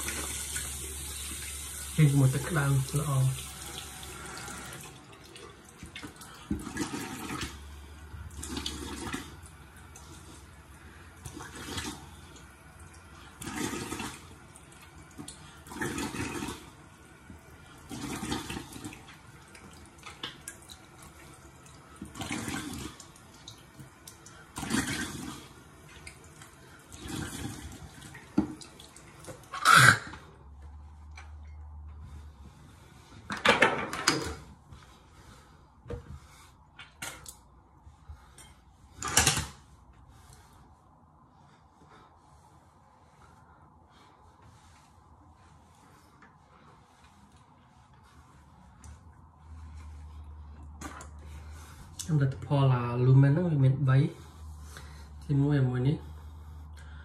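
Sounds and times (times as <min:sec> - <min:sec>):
water splashing at a sink: 0:00.0 - 0:30.3.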